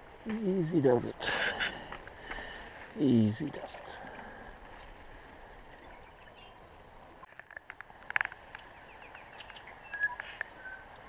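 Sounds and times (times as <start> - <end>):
steady low hiss: 0.0 - 11.0
bird chirps: 8.6 - 10.9.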